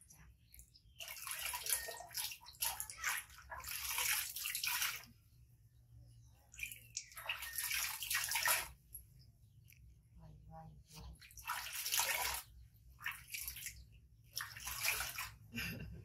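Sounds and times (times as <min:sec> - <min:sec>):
water splashing in tub: 0:00.0 - 0:05.2, 0:06.5 - 0:09.0, 0:11.1 - 0:15.5.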